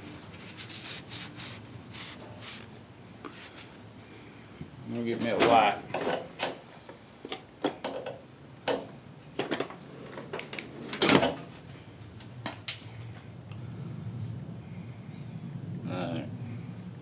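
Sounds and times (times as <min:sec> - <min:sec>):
tools and objects clattering: 0:05.2 - 0:06.6, 0:09.4 - 0:11.5.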